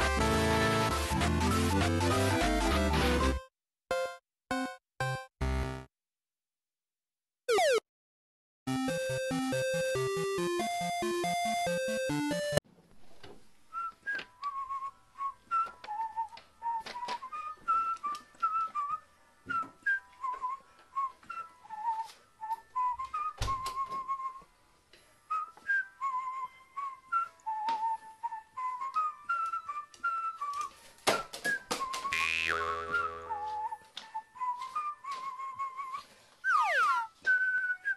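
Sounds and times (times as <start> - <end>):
whistled tune: 13.7 - 24.5, 25.3 - 37.9.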